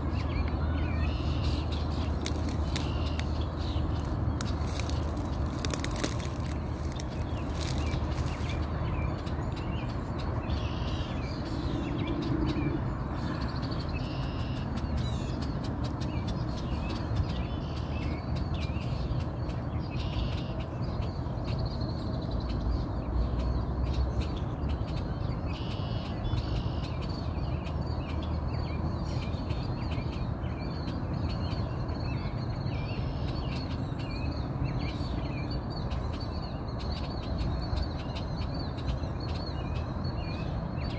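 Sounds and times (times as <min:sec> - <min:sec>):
birds calling: 0:00.0 - 0:40.9
swan bills clicking: 0:01.4 - 0:08.7.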